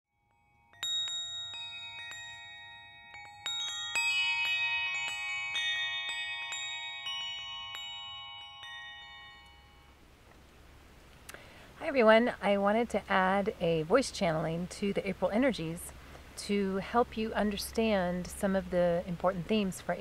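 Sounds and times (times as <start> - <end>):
wind chimes ringing: 0.1 - 10.2.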